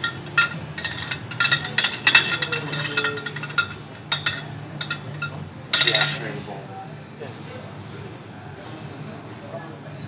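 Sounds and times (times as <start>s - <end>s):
metal hookah parts clinking: 0.0s - 6.4s.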